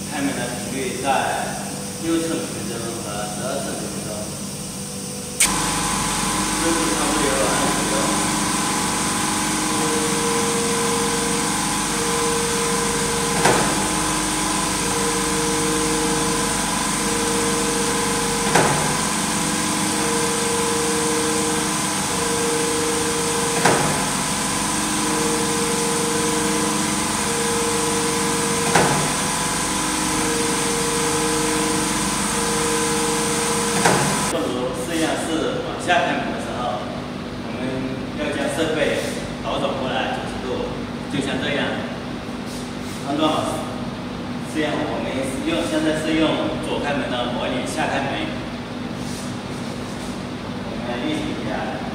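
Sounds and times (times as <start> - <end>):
motor humming at two pitches: 0.9 - 34.4
oven door shutting with knock: 13.3 - 13.8, 18.5 - 19.0, 23.6 - 24.1, 28.6 - 29.2, 33.8 - 34.3.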